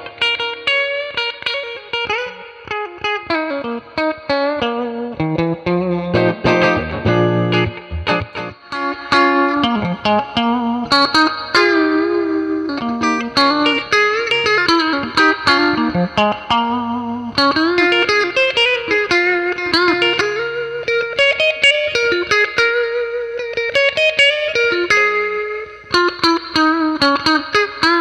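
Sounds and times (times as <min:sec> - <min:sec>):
electric guitar picked notes and chords: 0:00.0 - 0:28.0.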